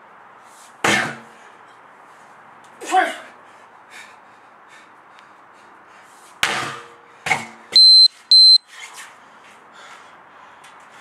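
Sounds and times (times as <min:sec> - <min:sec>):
sledgehammer striking tyre: 0:00.8 - 0:01.3, 0:06.4 - 0:07.6
high electronic beep: 0:07.8 - 0:08.6.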